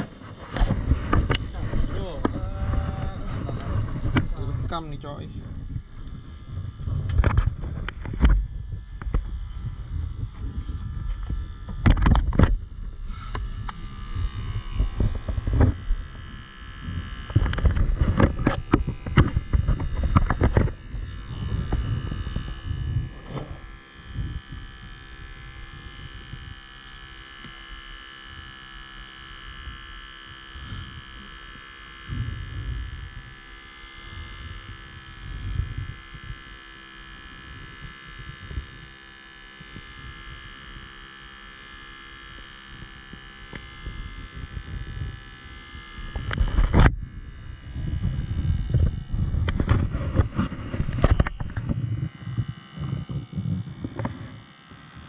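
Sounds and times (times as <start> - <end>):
air pump buzzing hum: 0.0 - 55.0
wind rumbling on microphone: 0.0 - 55.0.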